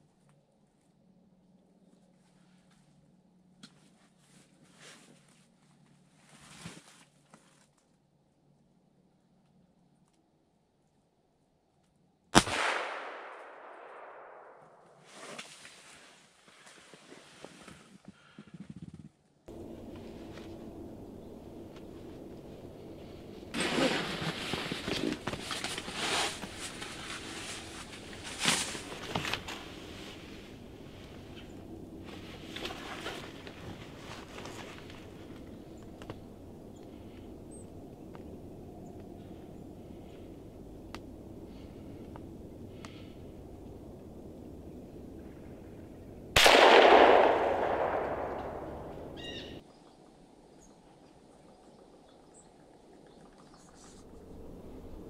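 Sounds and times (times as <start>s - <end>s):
fabric rustling and scuffing: 3.8s - 7.8s
rifle shot with echo: 12.4s - 15.0s, 46.4s - 49.2s.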